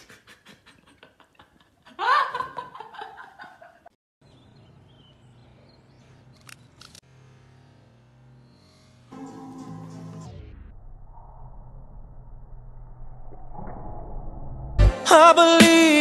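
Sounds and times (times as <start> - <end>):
person laughing: 0.0 - 3.9
short clicks: 6.3 - 7.0.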